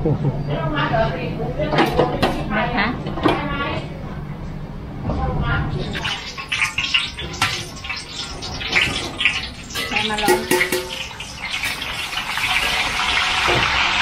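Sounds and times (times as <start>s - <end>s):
pork sizzling and popping in oil: 5.8s - 14.0s.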